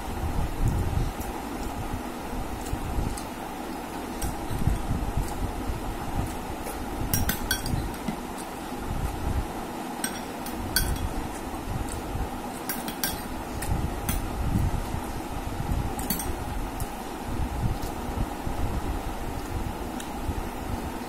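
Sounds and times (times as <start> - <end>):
spoon clinking against glass bowl: 7.1 - 7.8, 10.0 - 11.2, 12.7 - 13.3.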